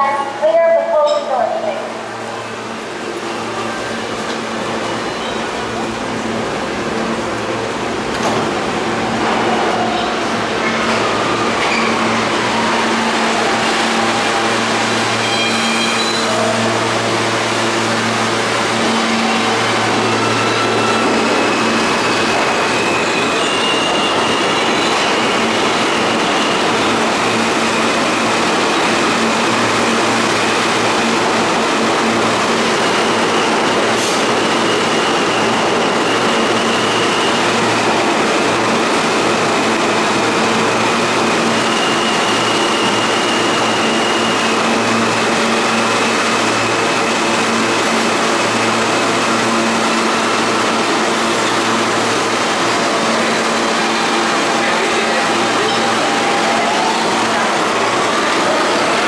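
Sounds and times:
subway train rumbling: 0.0s - 59.0s.

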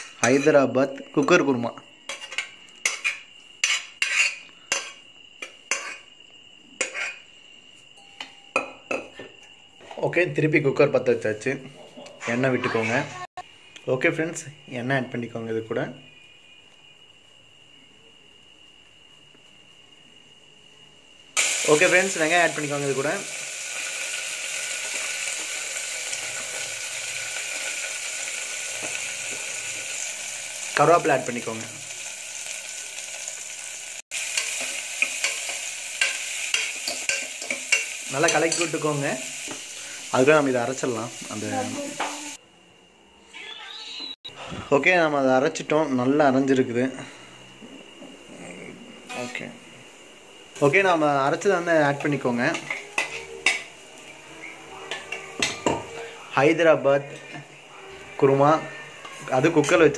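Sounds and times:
onions sizzling in oil: 0.0s - 7.6s, 21.4s - 42.4s, 49.5s - 59.9s
metal spoon scraping pots: 2.1s - 6.1s, 6.8s - 7.3s.

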